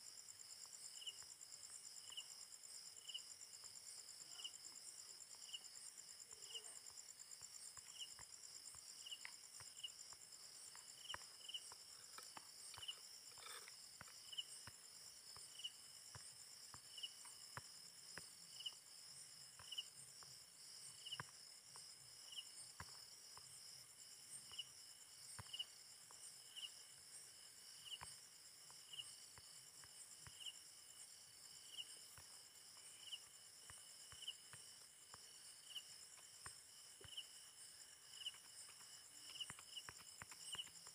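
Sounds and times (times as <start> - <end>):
insect chirp: 0.0 - 40.9
insect trill: 0.0 - 40.9.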